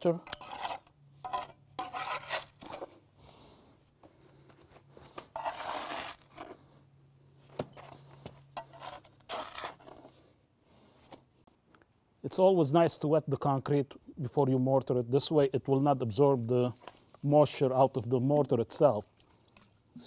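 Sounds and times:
trowel scraping wet mortar: 0.2 - 2.9, 5.1 - 6.6, 7.7 - 10.2.

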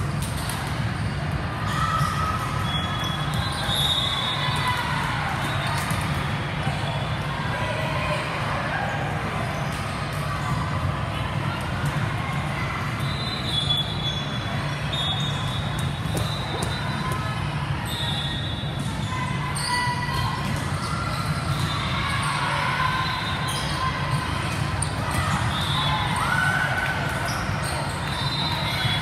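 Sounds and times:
sneaker squeaks: 0.0 - 4.8, 12.8 - 26.6, 27.2 - 29.0
ball bouncing on hard court: 16.0 - 17.2.

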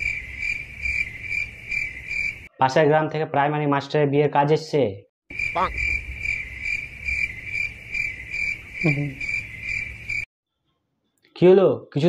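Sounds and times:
cricket chirping trill: 0.0 - 2.5, 5.3 - 10.3.

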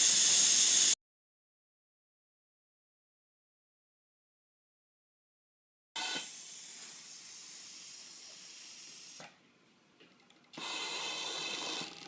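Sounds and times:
sewing machine running: 10.6 - 12.0.

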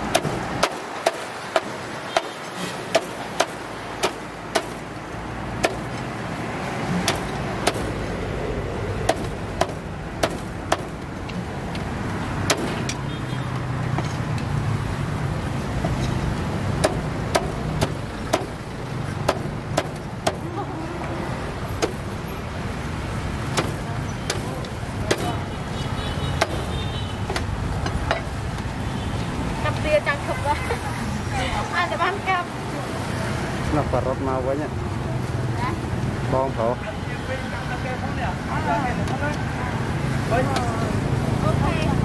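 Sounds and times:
cleaver chopping on wooden board: 0.0 - 4.8, 5.6 - 6.0, 7.0 - 8.0, 9.0 - 11.0, 12.4 - 13.0, 16.8 - 18.6, 23.5 - 25.4, 27.3 - 28.3.

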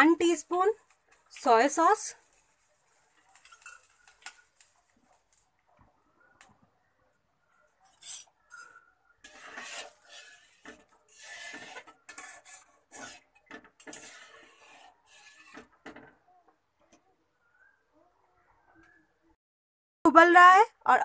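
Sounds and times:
metal spatula scraping a pan: 7.8 - 16.1.

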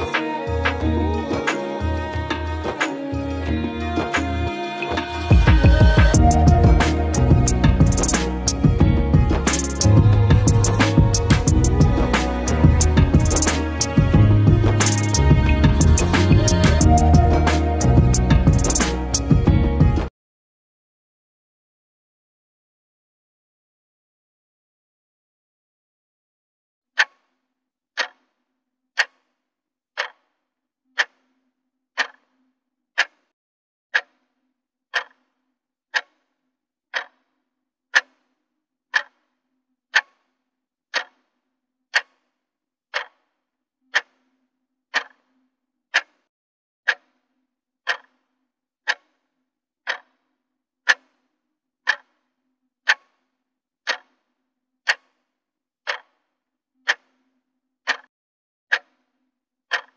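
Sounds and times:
clock ticking: 5.3 - 19.5, 28.0 - 28.2, 29.0 - 29.2, 30.0 - 30.2, 31.0 - 31.2, 32.0 - 32.2, 33.0 - 33.2, 34.9 - 35.2, 35.9 - 36.1, 36.9 - 37.2, 37.9 - 38.1, 38.9 - 39.2, 39.9 - 40.2, 40.9 - 41.2, 41.9 - 42.2, 42.9 - 43.2, 43.9 - 44.2, 44.9 - 45.2, 45.9 - 46.2, 47.9 - 48.1, 49.9 - 50.1, 51.9 - 52.1, 53.9 - 54.1, 55.9 - 56.1, 56.8 - 57.1, 57.9 - 58.1.

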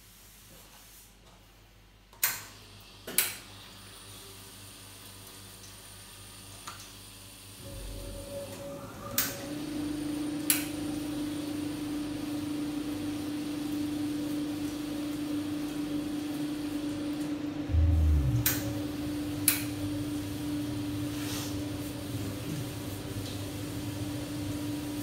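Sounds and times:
short low thud: 17.7 - 18.7.

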